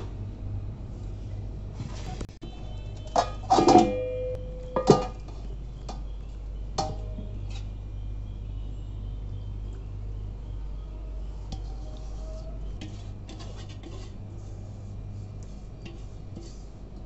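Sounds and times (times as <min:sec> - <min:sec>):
low hum: 0:00.0 - 0:13.4
metal bowl clinking on pot: 0:03.0 - 0:05.2.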